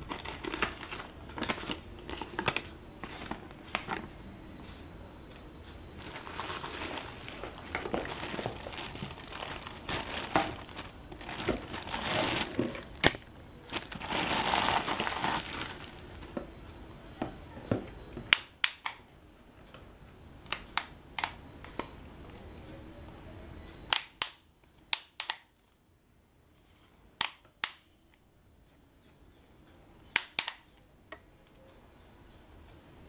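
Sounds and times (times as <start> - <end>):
plastic bag crinkling: 0.0 - 4.1, 5.9 - 16.3.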